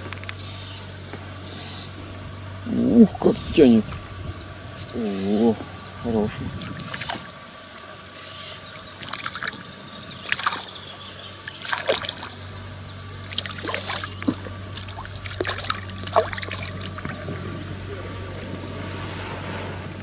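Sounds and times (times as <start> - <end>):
fish splashing at water surface: 6.5 - 17.8.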